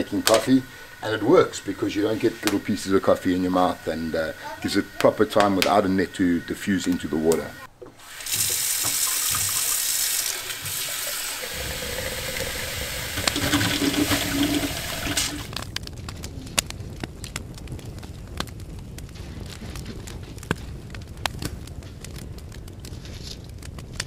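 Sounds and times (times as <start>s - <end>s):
water gushing from tap: 0.0s - 15.6s
wood fire crackling: 0.0s - 24.0s.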